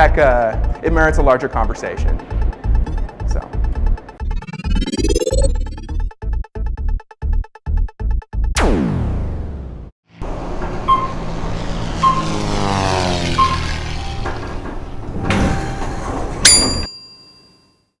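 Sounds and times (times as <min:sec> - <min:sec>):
short blips: 0:10.8 - 0:11.4, 0:12.0 - 0:14.6.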